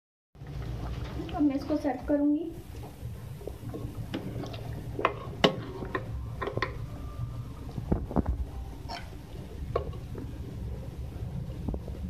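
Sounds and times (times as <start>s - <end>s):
low hum: 0.4s - 12.0s.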